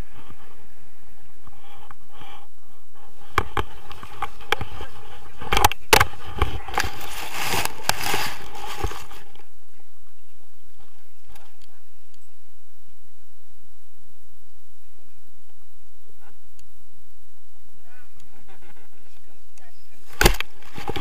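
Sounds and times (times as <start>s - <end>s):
rustling and scraping through grass: 0.0s - 13.2s, 17.8s - 21.0s.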